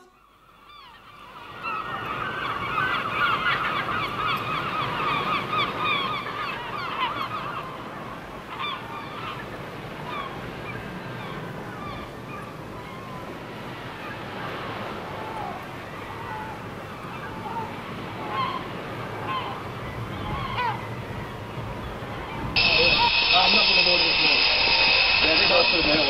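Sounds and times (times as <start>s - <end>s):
flock of birds calling: 0.0s - 26.0s
steady background rush: 22.6s - 26.0s.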